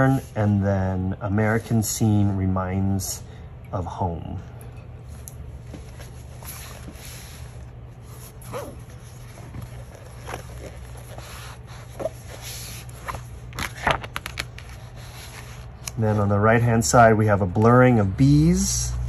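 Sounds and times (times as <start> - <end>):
steady low hum: 0.0 - 19.0
paper rustling: 5.7 - 16.3
page turning crackle: 8.6 - 16.0.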